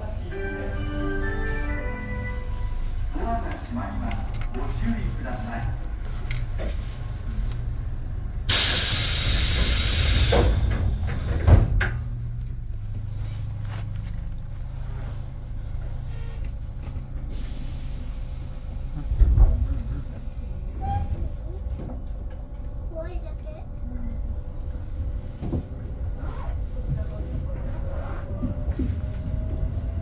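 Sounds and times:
compressed air hissing: 0:01.4 - 0:07.9, 0:08.5 - 0:11.5, 0:17.3 - 0:19.2.

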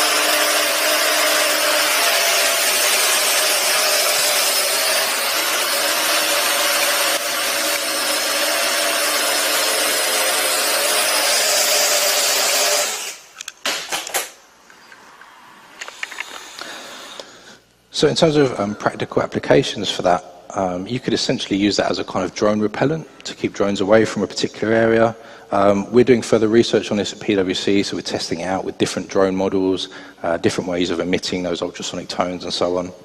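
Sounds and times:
drone rotors whining: 0:00.0 - 0:13.4.

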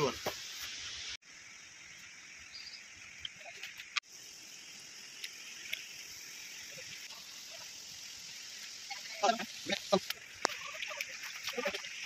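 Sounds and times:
steady high hiss: 0:00.0 - 0:12.0
faint clicks and chirps: 0:01.9 - 0:06.5.

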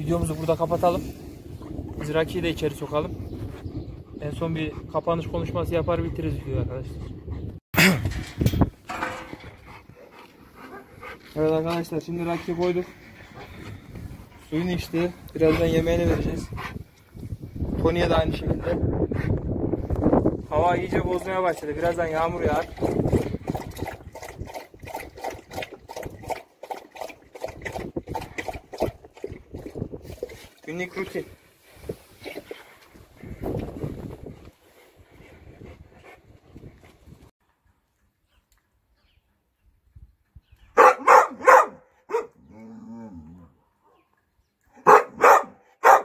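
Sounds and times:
dog lapping water: 0:21.1 - 0:30.7
dog barking: 0:40.8 - 0:42.4, 0:44.8 - 0:46.0.

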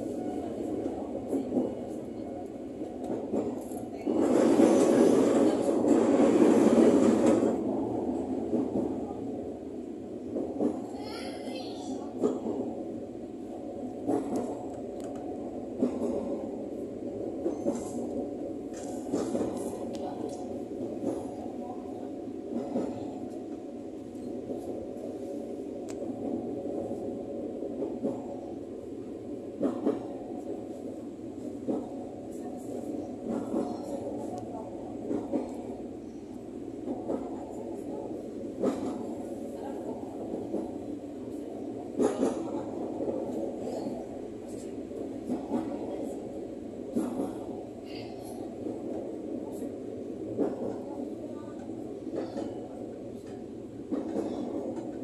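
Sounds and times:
train wheel and running noise: 0:00.0 - 0:55.0
clacks over rail joints: 0:33.2 - 0:34.4, 0:41.9 - 0:43.9, 0:50.3 - 0:55.0.

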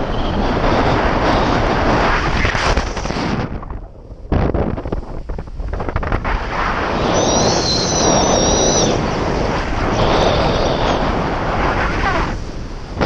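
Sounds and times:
loud wind buffeting microphone: 0:00.0 - 0:13.0
thin high whistle: 0:07.0 - 0:09.0.

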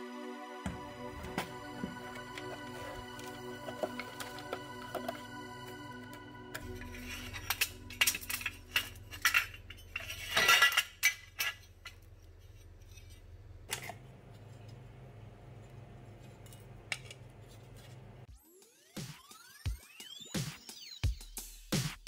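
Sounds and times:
metal heatsinks clinking: 0:01.1 - 0:14.0.

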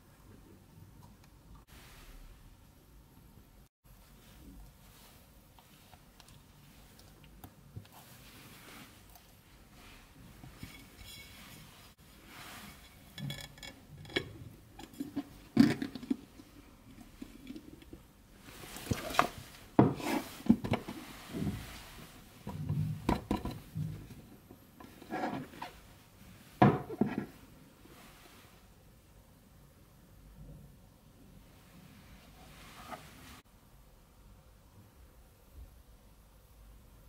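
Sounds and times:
silicone scraping and rubbing: 0:10.4 - 0:15.5.

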